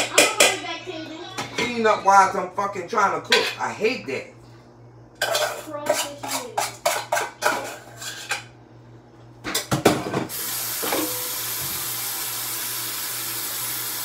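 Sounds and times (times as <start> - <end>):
dishes and cutlery clattering: 3.2 - 3.7, 5.2 - 8.5
tap running: 9.6 - 14.0.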